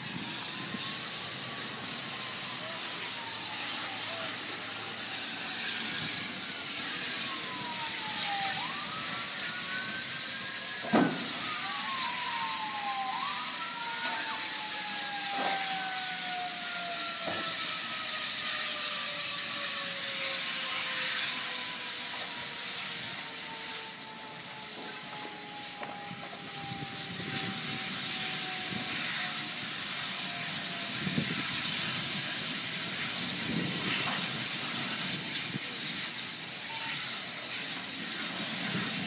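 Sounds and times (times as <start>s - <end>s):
steady rushing hiss: 0.0s - 15.9s, 20.3s - 39.0s
sirens wailing: 0.0s - 39.0s
sharp bang: 10.9s - 11.4s.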